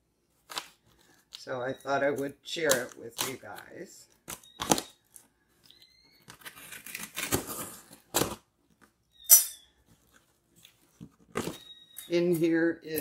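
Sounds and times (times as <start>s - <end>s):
tape ripping: 0.4s - 1.4s, 2.6s - 5.0s, 6.2s - 8.4s
packing tape scraping and tearing: 2.1s - 5.2s, 6.2s - 8.5s.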